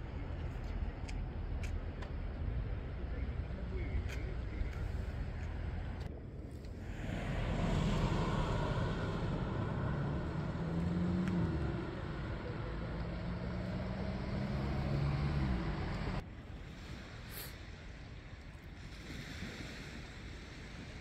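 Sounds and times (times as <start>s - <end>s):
vehicle engine humming: 0.0s - 16.2s.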